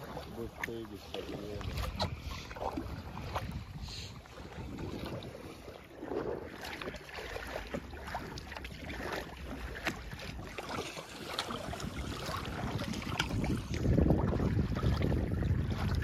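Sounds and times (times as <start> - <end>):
paddle splashes and drips: 0.0 - 16.0
wind rumble on microphone: 0.0 - 16.0.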